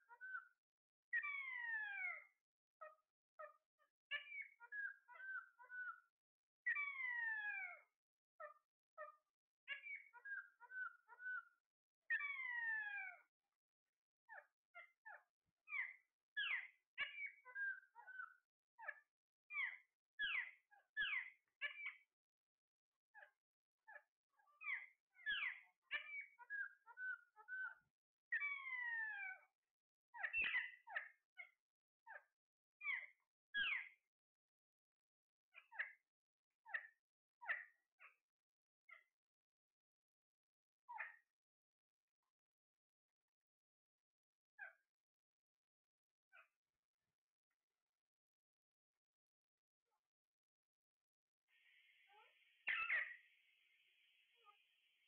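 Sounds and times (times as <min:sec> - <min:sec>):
parakeets chirping and chattering: 0:28.4 - 0:29.3, 0:51.6 - 0:53.3
parakeets squawking: 0:52.1 - 0:53.1.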